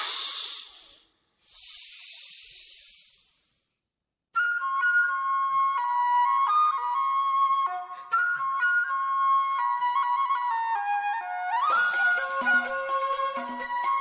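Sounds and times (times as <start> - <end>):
flute melody: 4.4 - 14.0.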